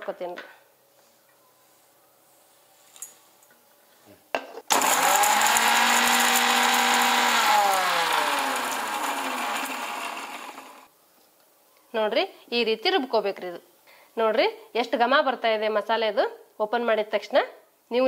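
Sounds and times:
mixer grinder grinding spices: 4.7s - 10.9s.

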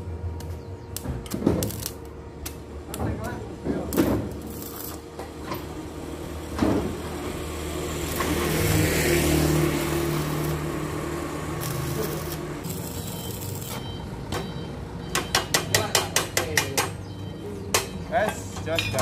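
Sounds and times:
welding arc crackling: 0.0s - 5.2s, 6.4s - 14.2s
arc welder humming: 0.0s - 15.6s.

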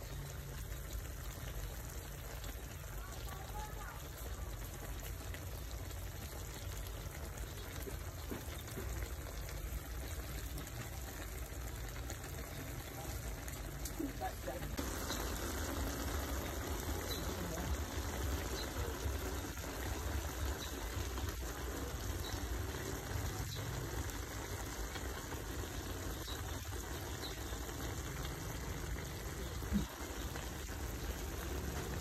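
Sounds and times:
food bubbling and sizzling in a pan: 0.0s - 32.0s.

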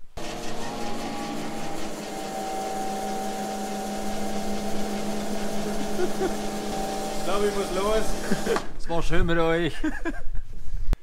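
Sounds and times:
car lift motor humming: 0.0s - 8.8s.

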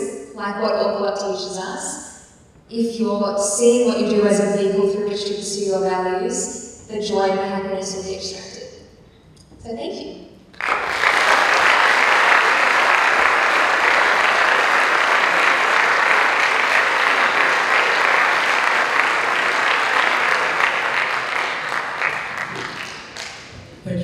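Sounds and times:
audience applauding: 10.6s - 23.6s.

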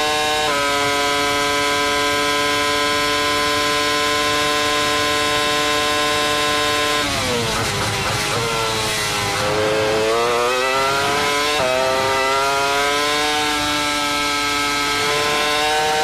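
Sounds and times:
racing car engine at full throttle: 0.0s - 16.0s.

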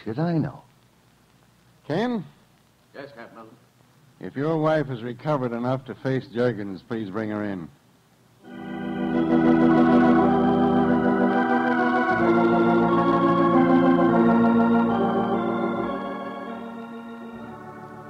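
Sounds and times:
sustained organ chords: 8.4s - 18.0s.

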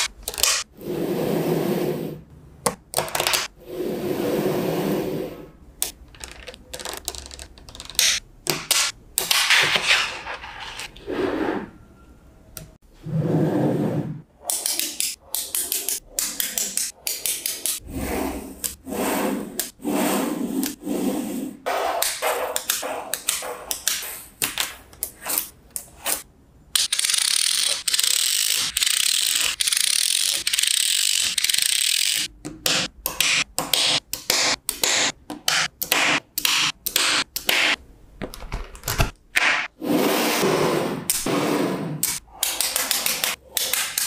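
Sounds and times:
magnetic balls clicking together: 5.8s - 8.9s.

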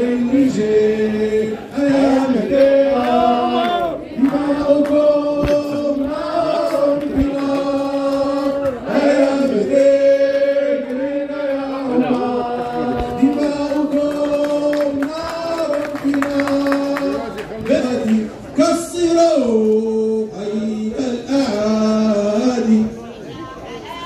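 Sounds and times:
men's chorus singing: 0.0s - 18.2s.

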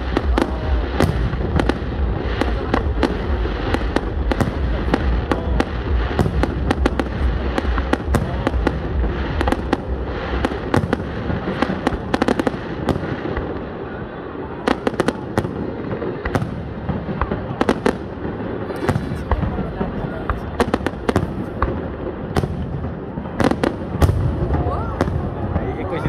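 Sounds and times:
low rumble: 0.0s - 12.1s
fireworks bangs and crackles: 0.0s - 26.0s.

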